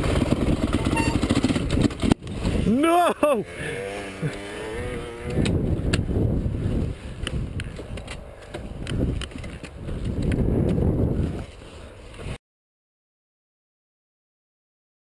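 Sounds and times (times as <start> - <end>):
wind buffeting microphone: 0.0 - 2.8, 4.6 - 12.4
motorbike engine rumble: 0.0 - 12.4.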